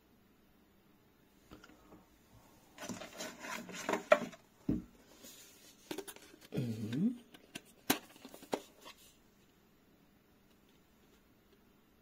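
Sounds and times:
plastic case rustling: 0:02.8 - 0:06.5, 0:07.2 - 0:09.2.

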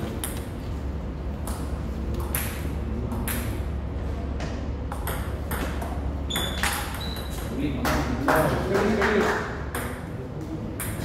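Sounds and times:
table tennis ball tapping: 0:01.4 - 0:03.6, 0:04.9 - 0:07.4.

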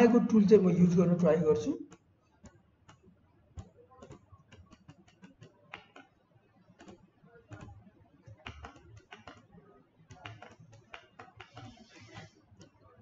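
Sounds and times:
keyboard and mouse clicking: 0:03.6 - 0:06.2, 0:06.8 - 0:09.5, 0:10.1 - 0:12.8.

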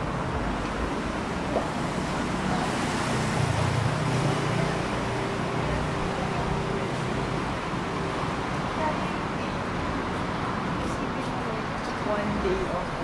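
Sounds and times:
steady engine hum: 0:00.0 - 0:13.0
vehicles passing: 0:00.0 - 0:13.0.

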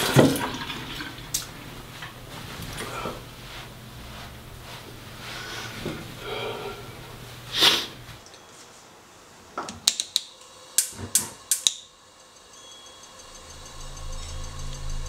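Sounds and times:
gas stove igniter clicking: 0:09.7 - 0:11.9.

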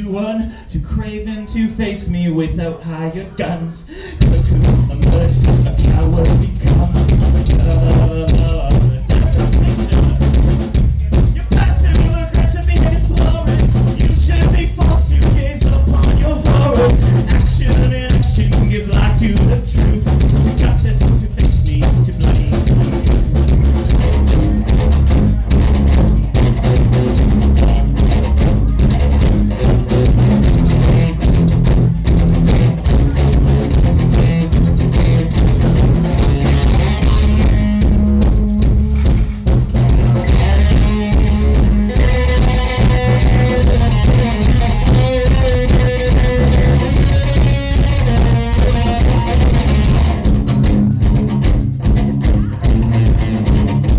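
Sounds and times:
live rock band playing: 0:04.0 - 0:53.9
guitar held notes: 0:23.3 - 0:53.9.

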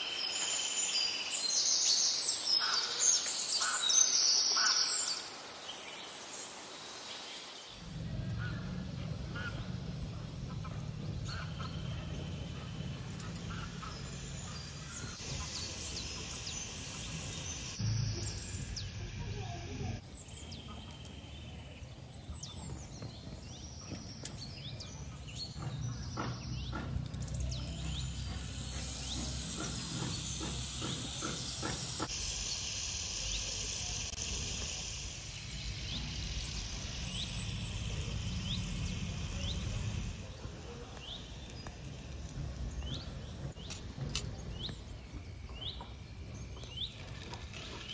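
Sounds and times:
small birds chirping: 0:00.0 - 0:47.9
batter sizzling in hot oil: 0:13.8 - 0:20.0, 0:27.2 - 0:43.3.

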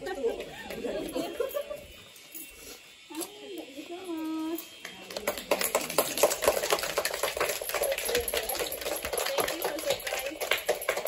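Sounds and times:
people clapping: 0:04.8 - 0:11.0.

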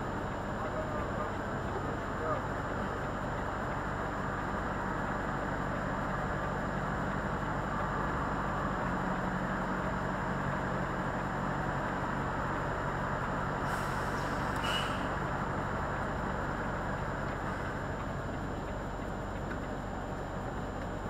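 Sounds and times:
diesel truck engine idling: 0:00.0 - 0:21.0
brief air hiss: 0:13.6 - 0:15.1.

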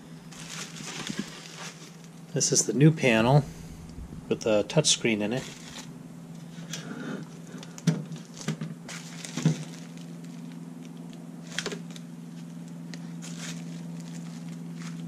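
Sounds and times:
steady low hum: 0:00.0 - 0:15.0
bubble wrap crinkling: 0:00.2 - 0:02.2, 0:05.3 - 0:05.9, 0:08.2 - 0:15.0.

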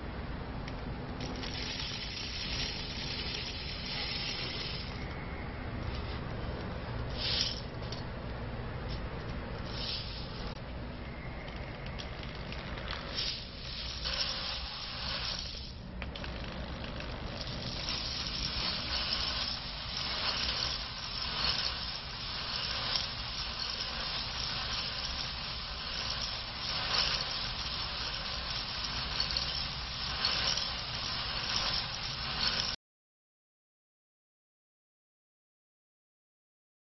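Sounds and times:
coffee beans rattling in drum: 0:01.2 - 0:05.0, 0:07.2 - 0:07.7, 0:12.2 - 0:32.8.

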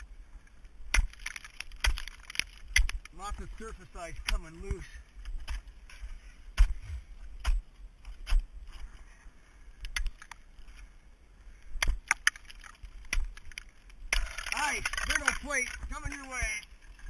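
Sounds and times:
ice axe striking ice: 0:00.8 - 0:03.1, 0:11.8 - 0:16.6.

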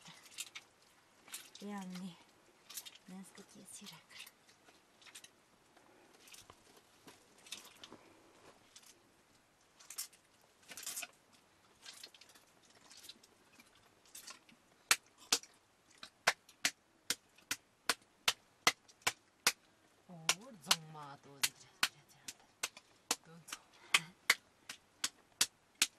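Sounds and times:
person speaking: 0:01.6 - 0:02.2, 0:20.1 - 0:22.5, 0:23.1 - 0:24.3
wet squeezing of butter: 0:06.1 - 0:16.6
butter slapped between palms: 0:14.9 - 0:15.5, 0:16.2 - 0:19.6, 0:24.0 - 0:25.9.

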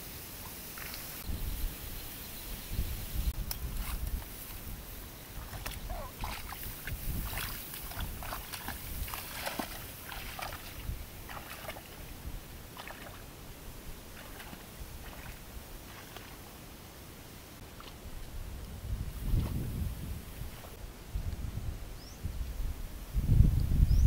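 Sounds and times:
grass swishing and rustling: 0:00.0 - 0:12.1
wind rumble on microphone: 0:01.1 - 0:16.3, 0:17.8 - 0:24.0.

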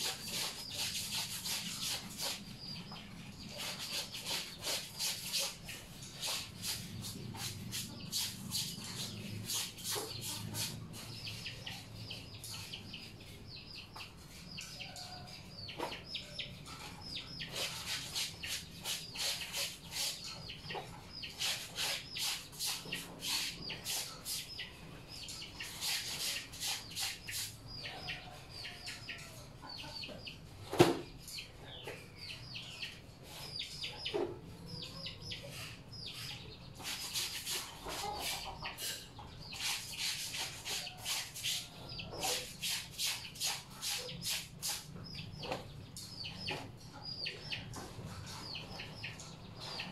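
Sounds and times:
rubbing wet fabric: 0:00.0 - 0:02.6, 0:03.4 - 0:11.2, 0:17.5 - 0:20.2, 0:36.8 - 0:38.4, 0:39.6 - 0:44.9.

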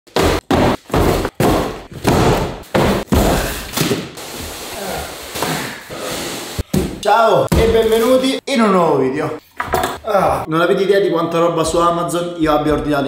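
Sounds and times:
cardboard boxes thumping: 0:00.1 - 0:04.1.

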